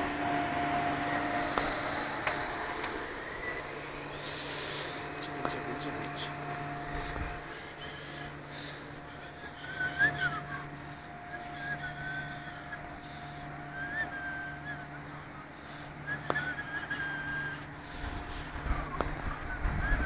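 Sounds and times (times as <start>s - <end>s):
train wheel squeals: 0.0s - 5.0s
train coach humming: 0.0s - 20.0s.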